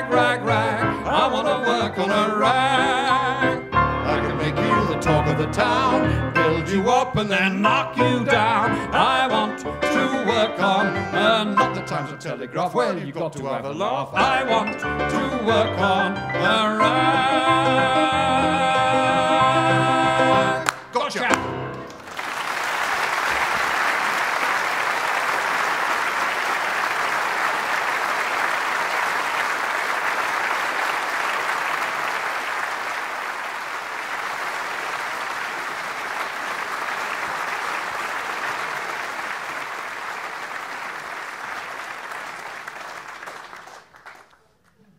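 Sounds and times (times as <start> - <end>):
audience applauding: 20.6 - 20.9, 21.7 - 44.9.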